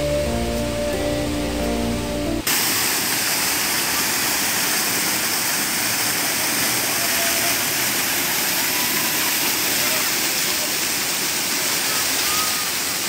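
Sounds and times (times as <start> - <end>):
background music: 0.0 - 2.5
waterfall rushing: 0.0 - 13.0.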